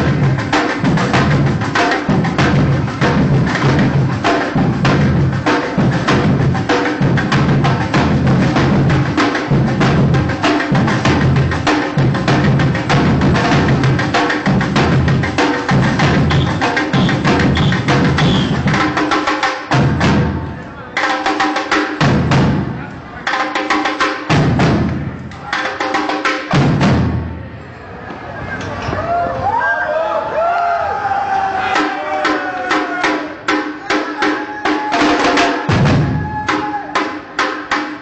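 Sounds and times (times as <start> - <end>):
deep bass drum beat: 0.0 - 19.0, 24.3 - 25.2
snare drums playing fast: 0.0 - 20.4, 31.8 - 38.0.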